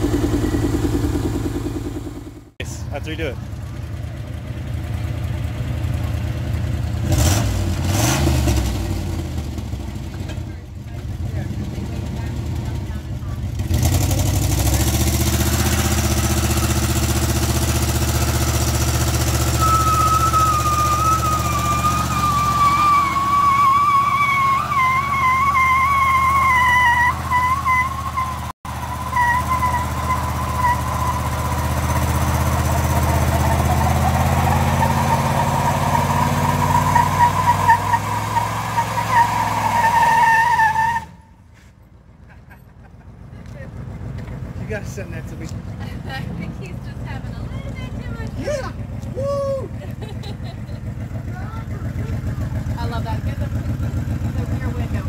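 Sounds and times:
engine running under load: 0.0s - 55.0s
tyre squeal: 19.2s - 41.6s.

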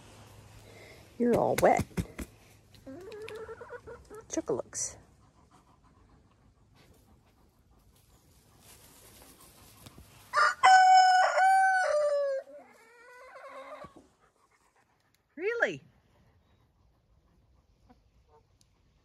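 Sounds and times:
rooster crowing: 10.3s - 12.6s.

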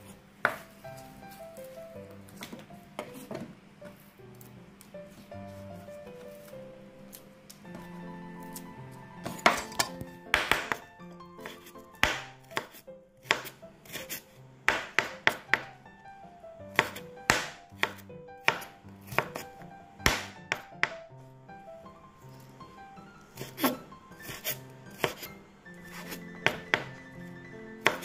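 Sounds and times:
knife chopping on wooden board: 0.4s - 0.7s, 7.7s - 10.8s, 11.4s - 15.7s, 16.7s - 21.0s, 23.4s - 25.3s, 25.9s - 27.0s.

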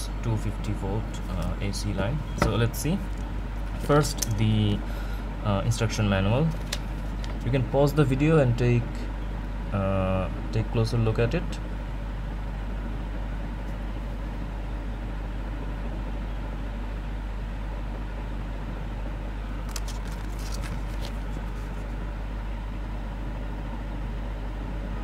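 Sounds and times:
steady low hum: 0.0s - 25.0s
paper crackling: 6.4s - 7.6s, 19.6s - 22.0s.

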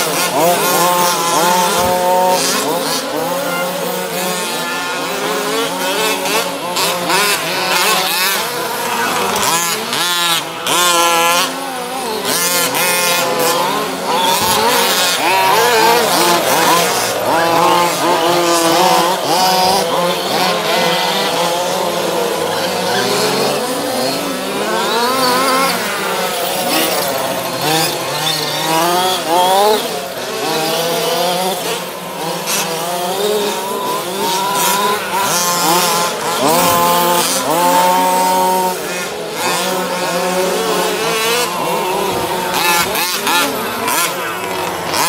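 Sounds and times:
radio-controlled car engines revving: 0.0s - 45.0s.

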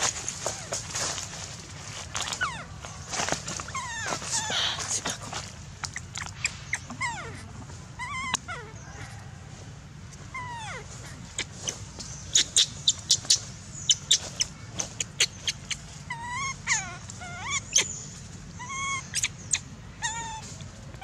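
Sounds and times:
baby monkey crying: 3.6s - 5.0s, 5.9s - 9.2s, 10.3s - 20.6s.

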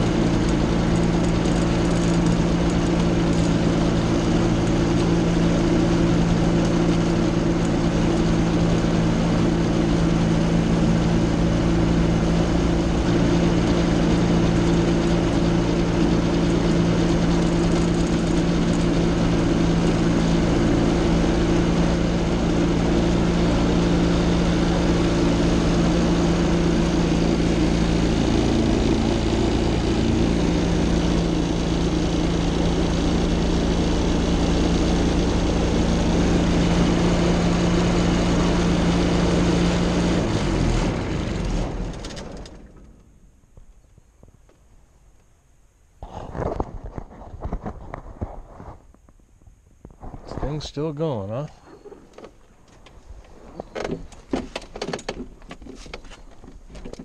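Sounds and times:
light aircraft engine and propeller: 0.0s - 43.8s.

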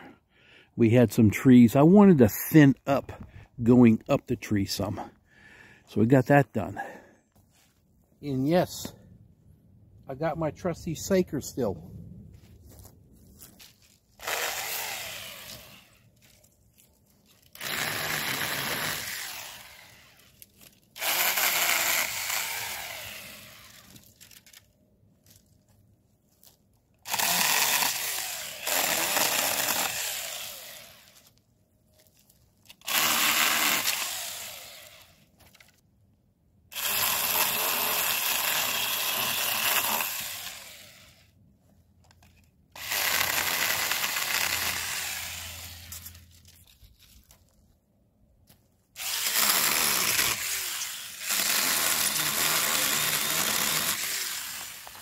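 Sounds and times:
chainsaw cutting branches: 14.2s - 16.4s, 17.3s - 24.6s, 27.0s - 31.2s, 32.6s - 35.3s, 36.7s - 41.3s, 42.7s - 46.8s, 48.9s - 55.0s.

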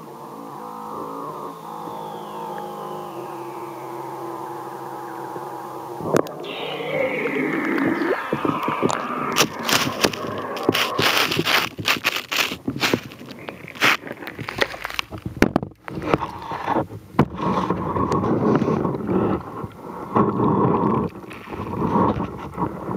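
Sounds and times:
camera scraping and knocking on ice: 9.4s - 19.2s.

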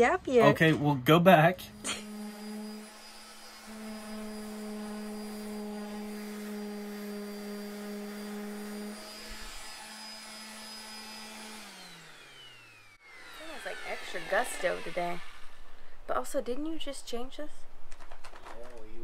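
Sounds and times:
electric sander whining: 1.6s - 15.9s.

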